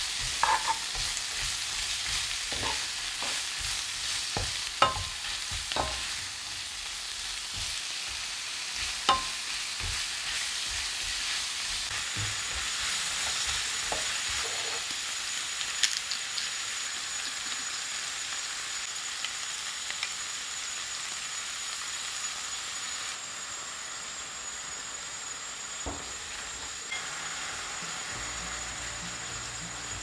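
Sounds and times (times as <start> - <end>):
bacon sizzling in a frying pan: 0.0 - 30.0.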